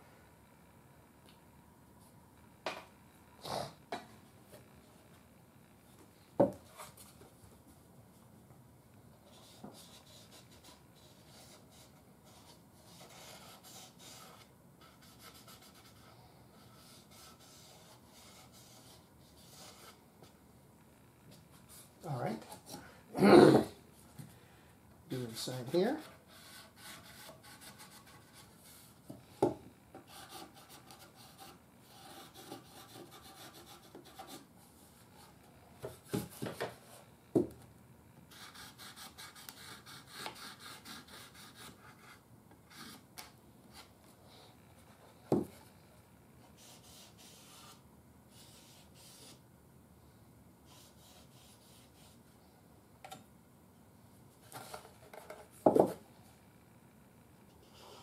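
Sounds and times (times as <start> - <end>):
marker scratching on wood: 9.3 - 20.0, 30.1 - 34.5, 38.3 - 43.0, 46.5 - 49.4, 50.6 - 52.2.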